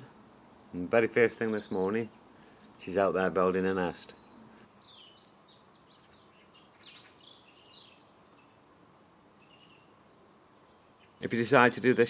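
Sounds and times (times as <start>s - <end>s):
songbird warbling: 4.0s - 8.7s, 9.4s - 10.0s, 10.6s - 11.4s.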